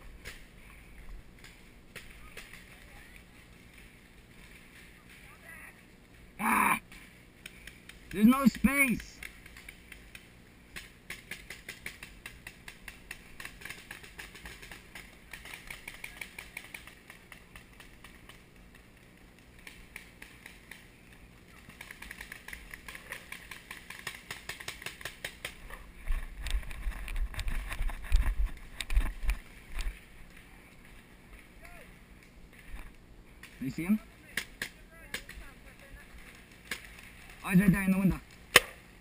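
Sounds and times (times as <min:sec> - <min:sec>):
paintball markers firing: 0:38.3 - 0:38.8.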